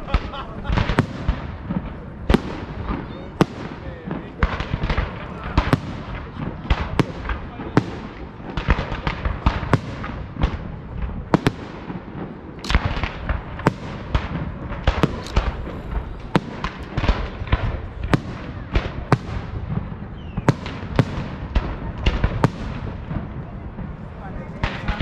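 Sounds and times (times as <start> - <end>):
fireworks bursting with sharp bangs: 0.0 - 25.0.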